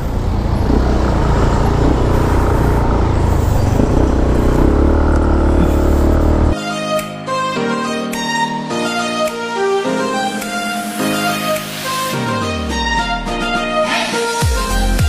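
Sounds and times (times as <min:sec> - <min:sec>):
motorcycle engine running: 0:00.0 - 0:06.6
road and wind noise: 0:00.0 - 0:06.6
background music with violin: 0:06.6 - 0:15.0.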